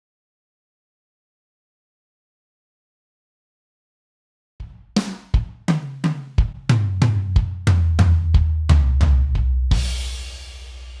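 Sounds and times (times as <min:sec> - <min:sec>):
tom drum fill: 0:04.6 - 0:11.0.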